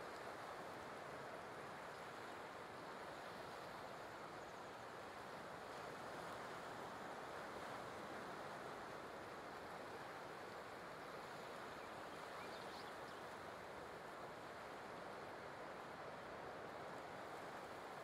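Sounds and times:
ocean surf on a beach: 0.0s - 18.0s.

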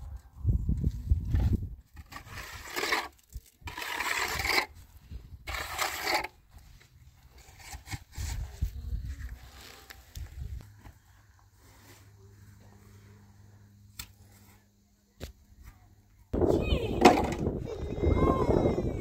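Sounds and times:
trowel scraping mortar: 1.9s - 4.8s, 5.4s - 8.4s.

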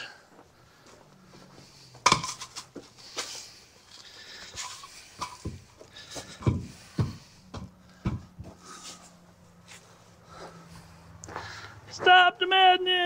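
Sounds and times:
knocks and clanks of wood and metal: 1.9s - 3.2s, 4.4s - 9.0s.

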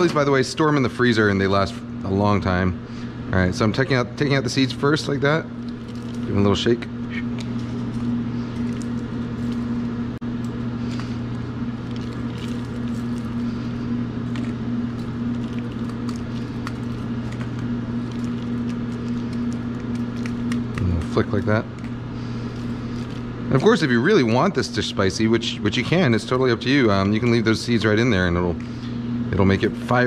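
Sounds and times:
kitchen machinery humming: 0.0s - 30.0s
dried chilies crackling: 10.6s - 23.9s.

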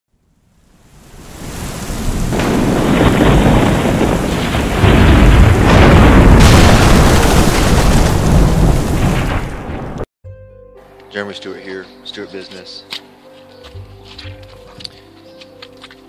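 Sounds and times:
heavy rain: 0.5s - 10.1s
rolling thunder: 1.1s - 10.1s.

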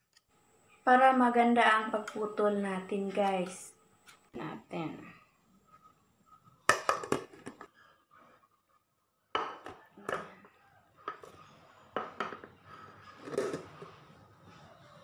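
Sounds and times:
plate and metal pan knocking: 9.4s - 10.3s.

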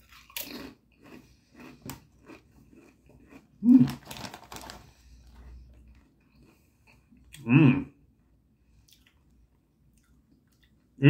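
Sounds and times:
crunchy chewing of potato chip: 0.0s - 7.0s
foil bag crinkling: 3.7s - 5.5s.

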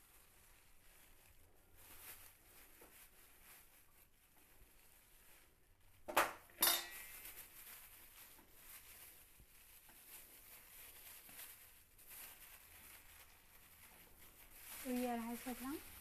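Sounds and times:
faint rustling: 0.0s - 6.1s, 6.8s - 16.0s
metal spoon clinking steel bowl: 6.6s - 7.1s.

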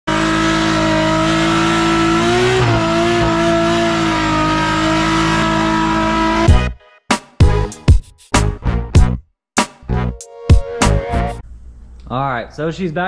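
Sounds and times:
car engine at high revs: 0.0s - 6.6s.

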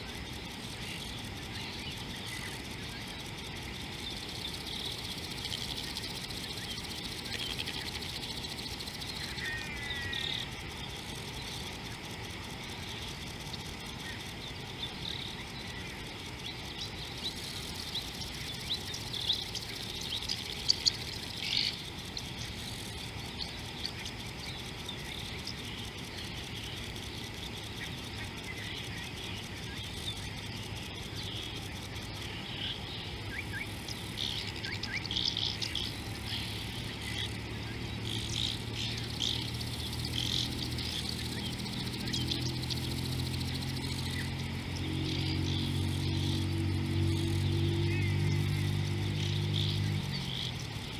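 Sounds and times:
insects: 0.0s - 50.9s
steady hiss: 0.0s - 50.9s
birds chirping: 0.2s - 50.9s.

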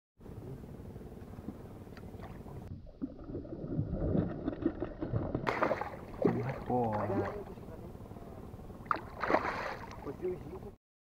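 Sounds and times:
low steady hum: 0.2s - 10.8s
fish splashing at water surface: 3.1s - 7.6s, 8.8s - 10.1s.

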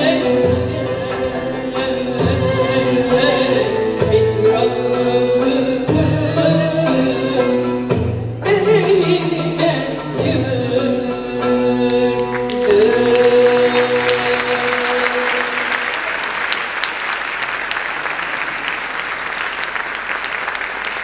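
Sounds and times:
woman singing: 0.0s - 15.8s
classical music ensemble: 0.0s - 21.0s
audience applause: 12.3s - 21.0s.

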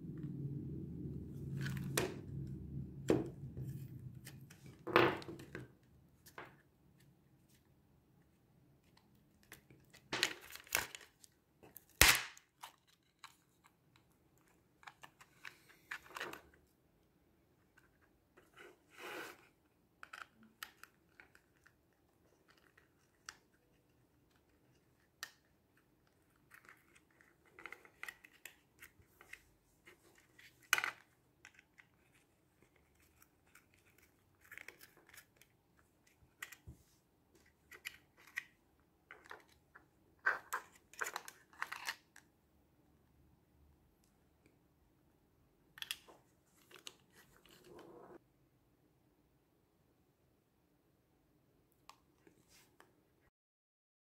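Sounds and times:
parts and cables scraping: 18.4s - 20.2s.

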